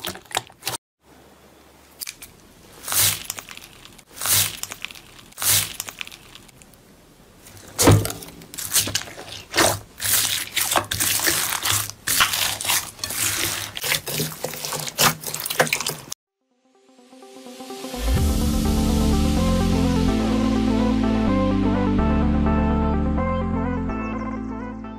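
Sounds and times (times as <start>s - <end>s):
slime squelching and crackling: 2.0s - 6.7s, 7.4s - 16.2s.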